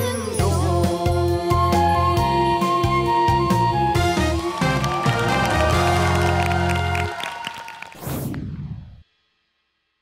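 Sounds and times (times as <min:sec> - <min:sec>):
theme music with heavy bass: 0:00.4 - 0:07.3.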